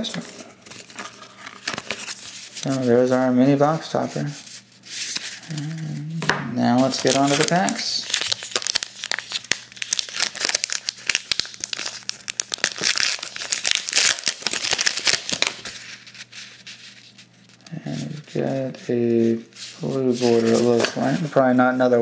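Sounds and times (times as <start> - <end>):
wrapper crinkling and tearing: 6.8 - 17.7.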